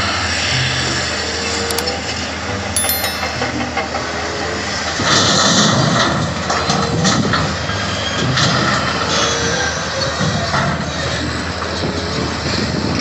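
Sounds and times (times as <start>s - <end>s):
metallic clinks: 2.8s - 3.6s.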